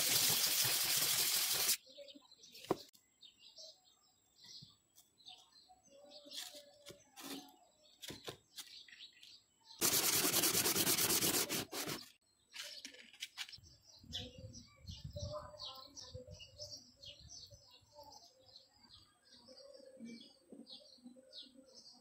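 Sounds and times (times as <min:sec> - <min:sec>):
metal scraping on sandpaper: 0:00.0 - 0:01.8, 0:09.8 - 0:12.2
birds chirping: 0:00.1 - 0:22.0.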